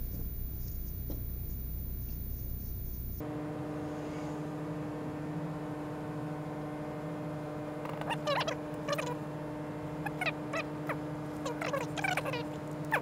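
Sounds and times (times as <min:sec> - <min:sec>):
drone of held tones: 0:00.0 - 0:03.2
low steady hum: 0:00.0 - 0:03.6.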